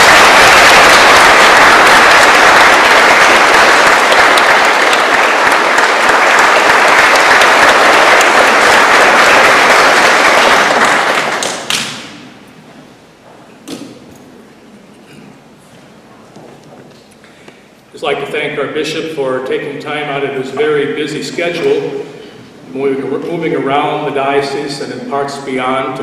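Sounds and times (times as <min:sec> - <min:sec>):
congregation applauding: 0:00.0 - 0:12.4.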